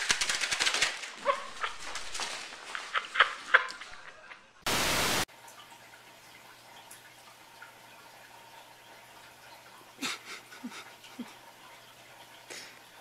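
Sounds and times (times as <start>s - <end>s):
static hiss burst: 4.6s - 5.3s.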